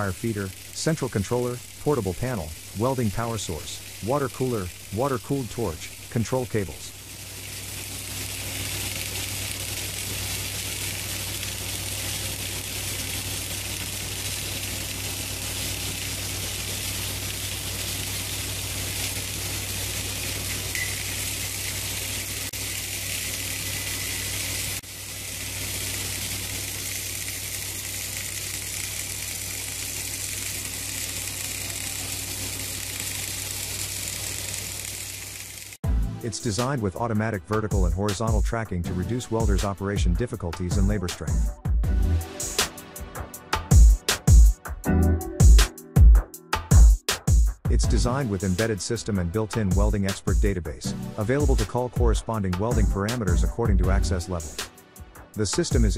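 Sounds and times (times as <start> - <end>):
welding arc hissing: 0.0 - 35.8, 42.2 - 43.0, 54.2 - 55.9.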